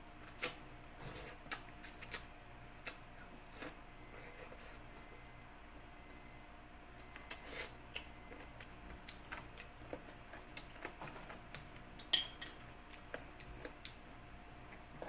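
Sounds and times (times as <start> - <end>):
utensils clinking against a dish: 12.1 - 12.6.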